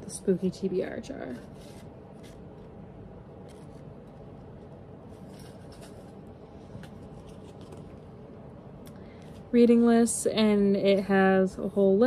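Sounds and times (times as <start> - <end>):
low room noise: 0.0 - 12.0
paper rustling: 5.1 - 8.0.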